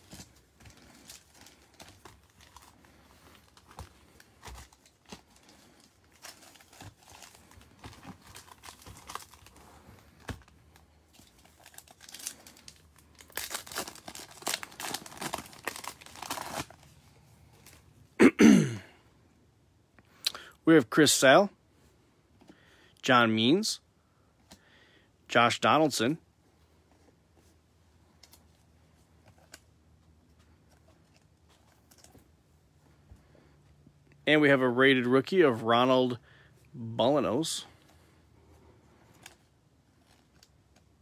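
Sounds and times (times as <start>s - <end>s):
foil wrappers crinkling: 0.0s - 17.0s.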